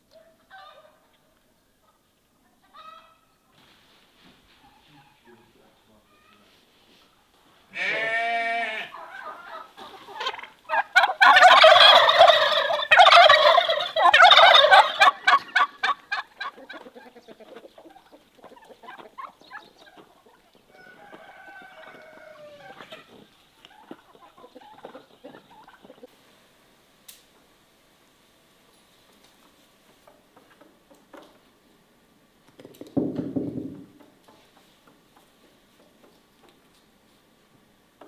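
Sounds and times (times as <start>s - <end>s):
turkey gobbling: 0.2s - 1.2s, 1.8s - 3.3s, 8.9s - 26.1s
chickens clucking softly: 8.9s - 26.1s.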